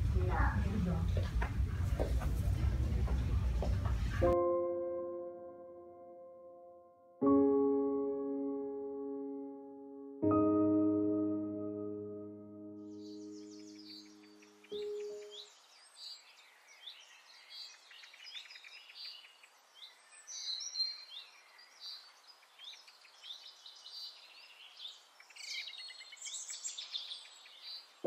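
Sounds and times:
low musical note: 4.2s - 15.4s
small birds chirping: 12.9s - 28.0s.

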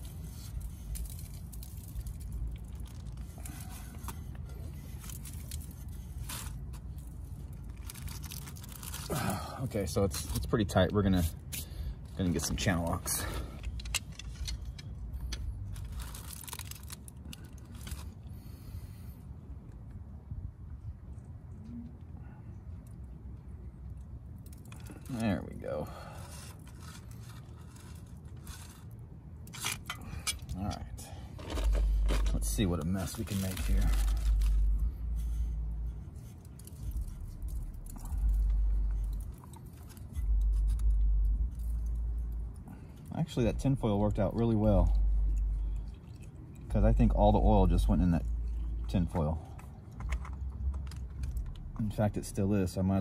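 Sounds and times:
aluminium foil crinkling: 0.0s - 18.6s, 24.4s - 43.5s, 44.1s - 52.0s
pliers scraping oil filter: 26.3s - 35.4s.

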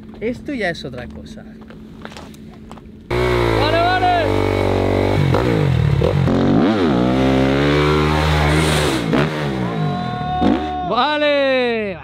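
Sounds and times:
motocross bike engine revving: 3.1s - 10.8s.

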